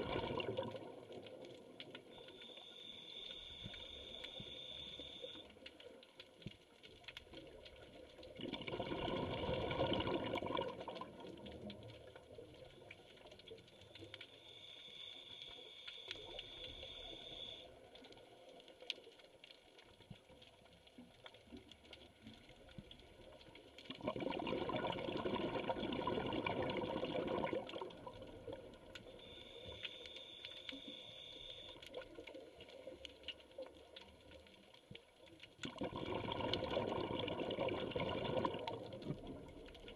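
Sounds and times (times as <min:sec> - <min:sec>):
exhaled bubbles rushing: 0:00.0 - 0:01.2, 0:08.3 - 0:11.6, 0:23.9 - 0:28.9, 0:35.6 - 0:39.9
regulator inhale hiss: 0:02.1 - 0:05.6, 0:14.2 - 0:17.9, 0:29.0 - 0:32.0.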